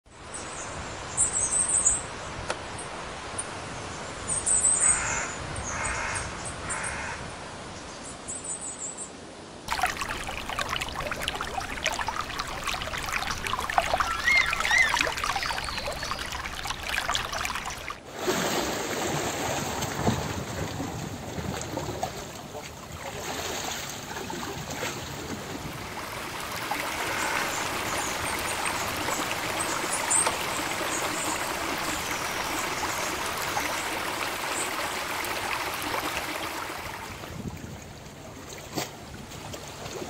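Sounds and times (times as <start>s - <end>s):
outdoor background noise: 0.1s - 40.0s
crows cawing: 4.9s - 7.2s
small birds chirping: 9.8s - 18.0s.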